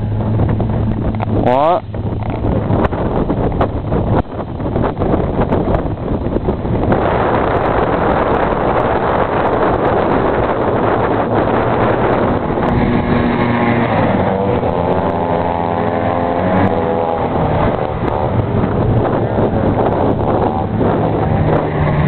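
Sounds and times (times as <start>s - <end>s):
wind noise on microphone: 0.0s - 22.0s
snowmobile two-stroke engine passing: 11.4s - 22.0s.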